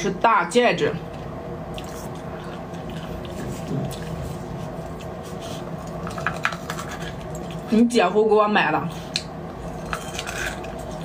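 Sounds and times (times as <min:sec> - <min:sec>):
wet eating mouth sounds: 0:01.7 - 0:07.7.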